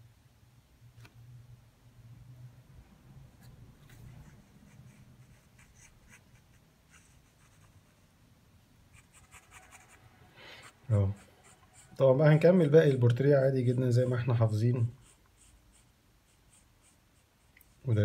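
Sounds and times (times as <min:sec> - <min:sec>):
pencil scratching on paper: 0:03.9 - 0:08.0, 0:08.9 - 0:18.0.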